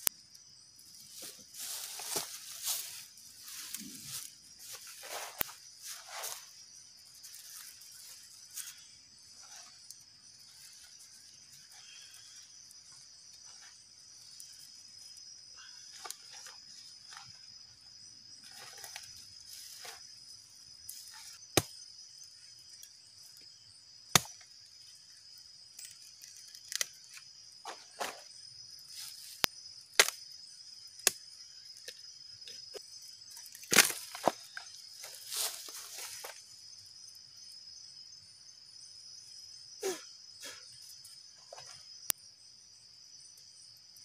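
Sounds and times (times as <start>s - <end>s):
insect chorus: 0.0s - 44.0s
sharp cracks and knocks: 24.1s - 24.5s, 25.8s - 28.2s, 29.4s - 30.2s, 31.0s - 31.2s, 33.4s - 34.6s.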